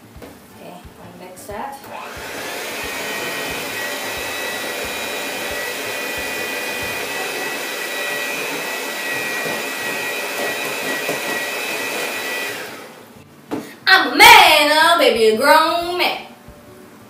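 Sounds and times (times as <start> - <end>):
electric hand mixer whining: 1.9 - 13.2.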